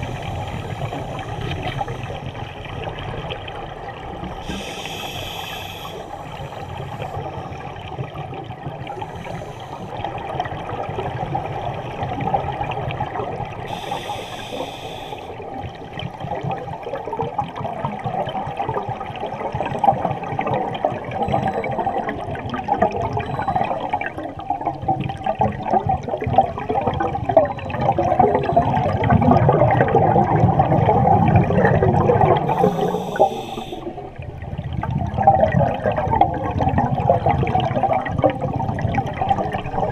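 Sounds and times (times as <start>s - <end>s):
underwater air bubbles: 0.0s - 39.9s
short high hisses: 4.5s - 6.6s, 13.7s - 15.3s, 32.5s - 33.9s.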